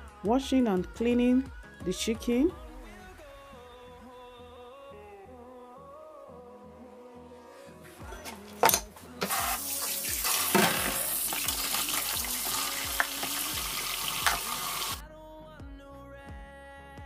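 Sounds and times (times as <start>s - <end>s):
tap water splashing in sink: 9.2s - 15.0s.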